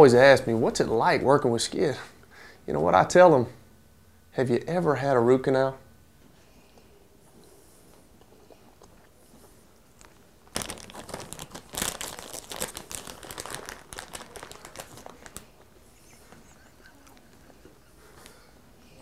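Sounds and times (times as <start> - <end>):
plastic snack bag crinkling: 10.0 - 17.6.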